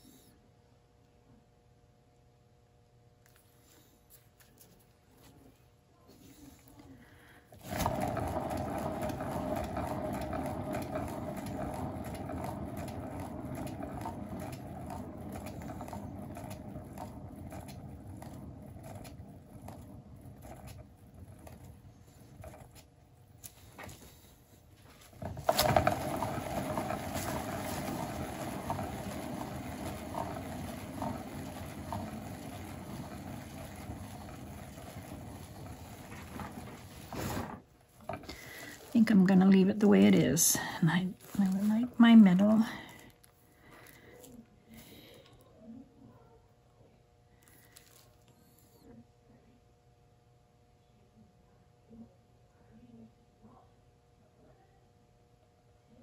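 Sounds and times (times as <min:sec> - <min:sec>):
turntable rolling rumble: 0:07.5 - 0:43.1.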